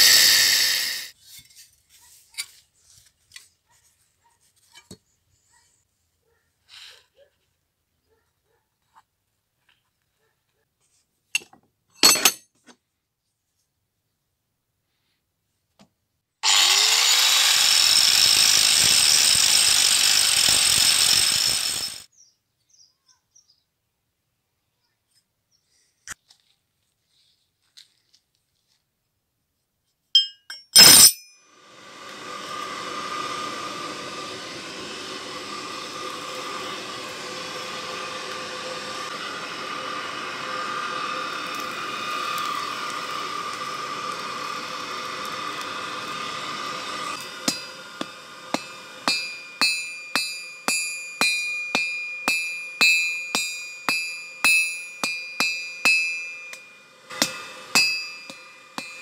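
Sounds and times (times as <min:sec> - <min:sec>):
sharp metal clank: 0:12.0 - 0:12.4, 0:30.2 - 0:31.4, 0:47.4 - 0:59.0
hammer ringing on anvil: 0:30.2 - 0:31.5, 0:47.2 - 0:59.0
forge blower humming: 0:31.5 - 0:59.0.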